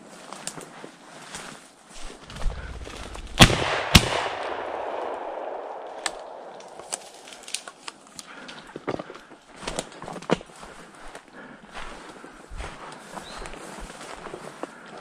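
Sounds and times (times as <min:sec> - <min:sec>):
shotgun shots with rolling echo: 0:03.3 - 0:07.4.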